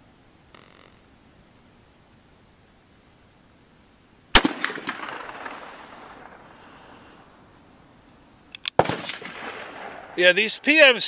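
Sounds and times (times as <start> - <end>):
revolver gunshot with echoes: 4.4 - 6.4, 8.8 - 10.3.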